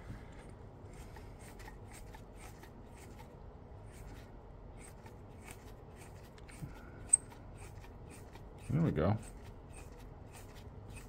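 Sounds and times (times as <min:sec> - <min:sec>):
clamp screw ticking and scratching: 0:04.8 - 0:11.0.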